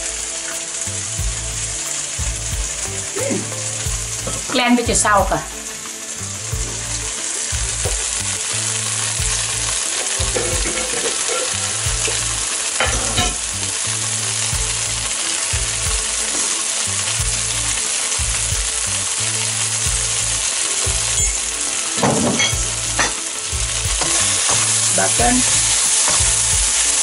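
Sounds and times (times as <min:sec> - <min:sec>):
curry sizzling in a wok: 0:00.0 - 0:27.0.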